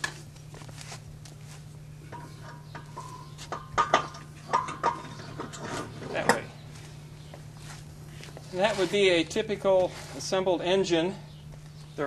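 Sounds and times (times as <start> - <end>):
metal clinks and knocks: 2.1 - 6.4.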